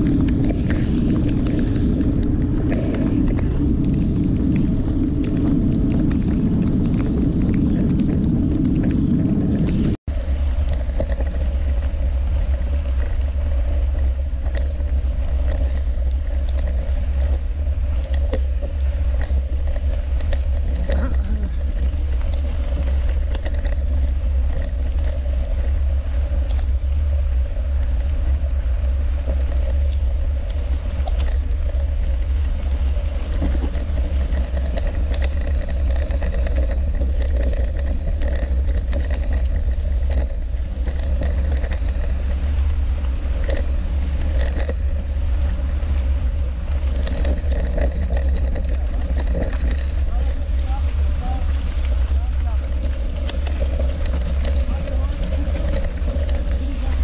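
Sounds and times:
bike clicks and knocks: 0.0s - 57.0s
bike rolling over gravel: 0.0s - 57.0s.

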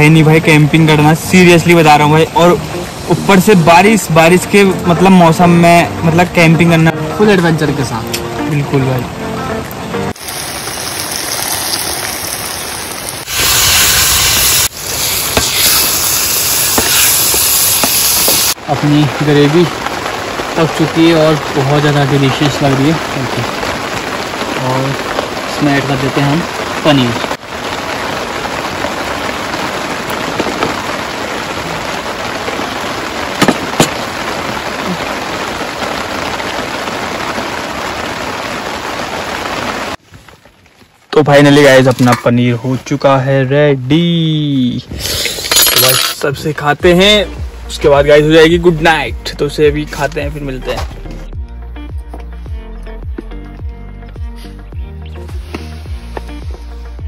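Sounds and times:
rain falling steadily: 0.0s - 57.0s
steady loud hiss: 13.2s - 19.7s.

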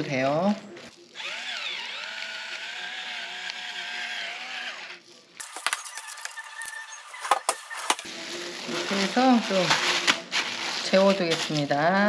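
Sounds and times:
plastic bowl cover crinkling: 5.4s - 12.0s.

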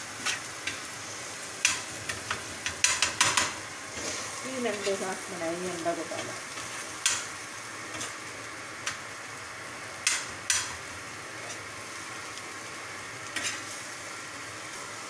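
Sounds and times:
egg sizzling in a frying pan: 0.0s - 15.0s
metal spatula scraping a pan: 0.2s - 0.9s, 11.4s - 11.7s, 13.3s - 13.8s.

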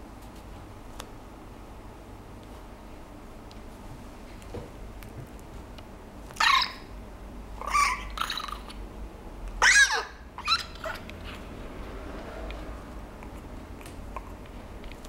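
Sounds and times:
puppy whimpering cries: 6.4s - 6.9s, 7.6s - 8.5s, 9.6s - 11.0s.

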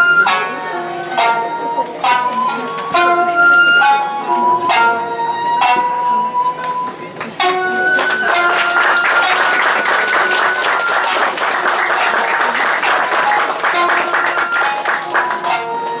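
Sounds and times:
classical music held notes: 0.0s - 16.0s
audience applauding: 7.1s - 16.0s.

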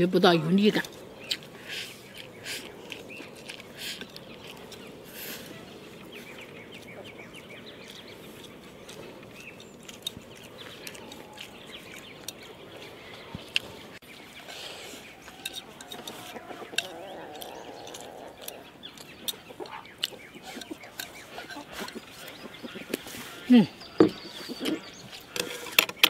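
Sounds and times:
chickens clucking: 0.4s - 26.0s
chopsticks on rice bowl: 6.7s - 13.8s, 14.5s - 23.4s.

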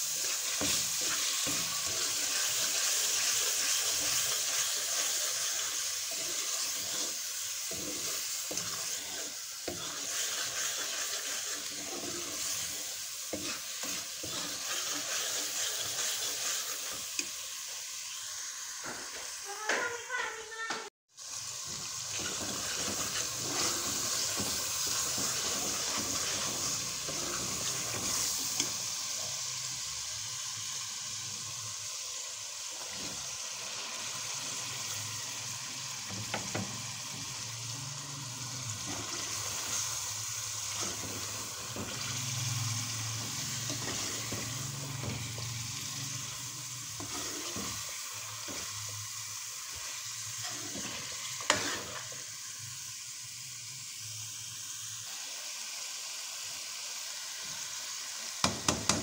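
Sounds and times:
spoon stirring and scraping pan: 0.0s - 17.4s, 21.3s - 29.4s, 38.7s - 52.3s
food sizzling in oil: 0.0s - 59.0s.

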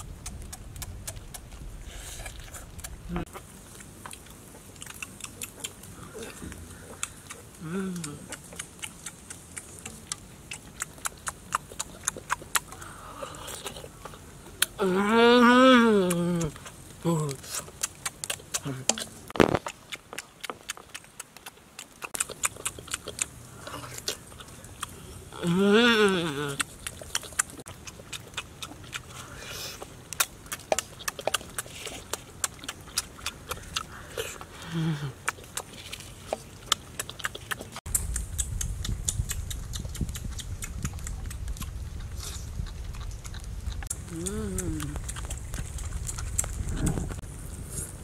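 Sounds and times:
low rumble: 0.0s - 3.4s, 37.9s - 48.0s
wet chewing and lip-smacking: 0.0s - 14.8s, 16.0s - 48.0s.

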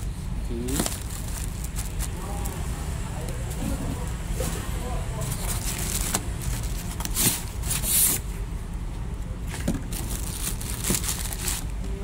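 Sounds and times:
plastic packaging crinkling: 0.6s - 2.6s, 5.3s - 8.1s, 9.9s - 11.8s.

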